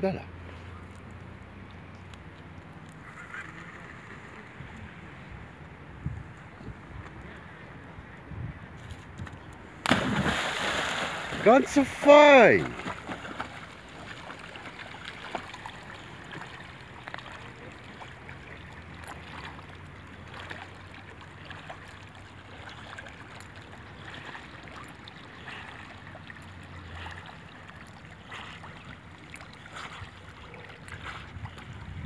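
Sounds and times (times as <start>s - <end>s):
dog swimming splashing water: 9.9s - 31.8s.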